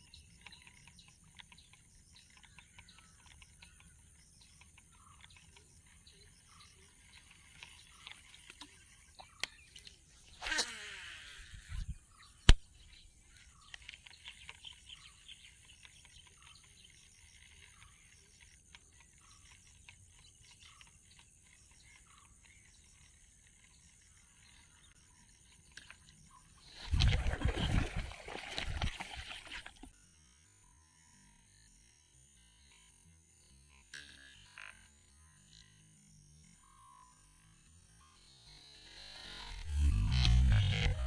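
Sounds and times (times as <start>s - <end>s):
faint frog calls: 29.6s - 41.0s.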